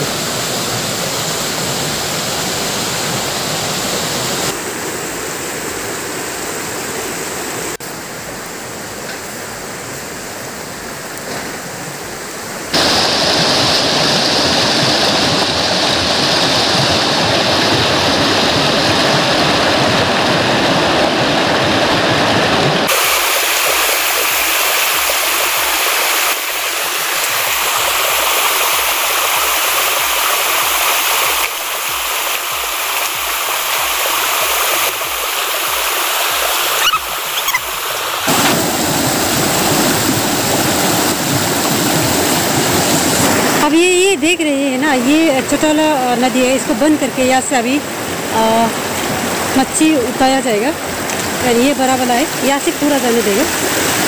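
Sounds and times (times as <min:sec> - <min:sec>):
stream rushing over stones: 0:00.0 - 0:54.0.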